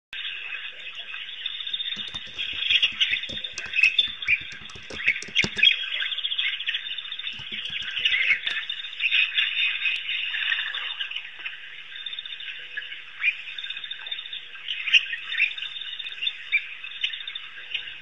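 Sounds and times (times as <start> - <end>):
short dull knocks: 2.0 - 5.8, 7.4 - 8.7.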